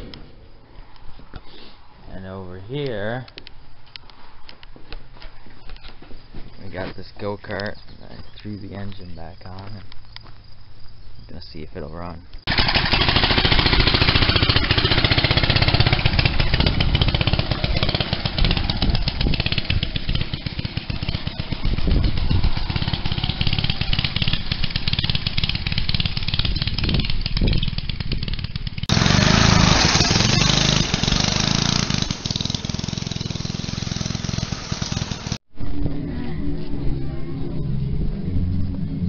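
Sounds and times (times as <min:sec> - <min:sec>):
go-kart engine running: 0:12.5 - 0:35.4.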